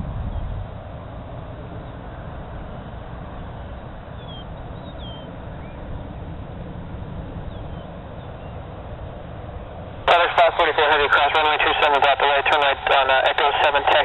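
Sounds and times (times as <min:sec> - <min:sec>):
low rumble and hiss: 0:00.0 - 0:14.0
bird chirps: 0:04.1 - 0:05.8.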